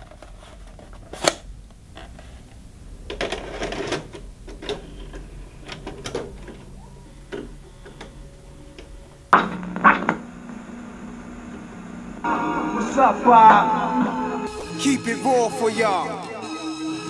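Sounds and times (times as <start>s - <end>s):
cassette loading mechanism clunking: 0.0s - 2.2s, 3.0s - 12.2s
steady low hum: 0.0s - 14.7s.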